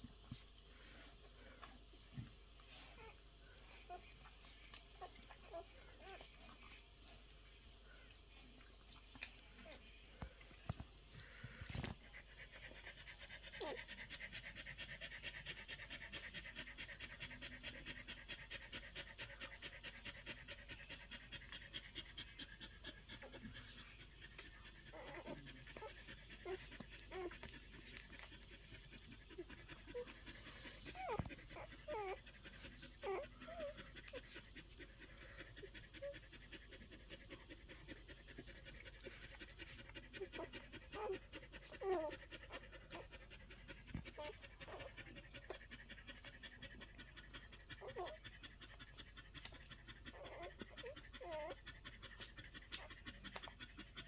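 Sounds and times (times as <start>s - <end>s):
puppies squeaking and whining: 2.0s - 7.2s, 22.9s - 36.4s, 37.1s - 48.8s, 49.4s - 53.6s.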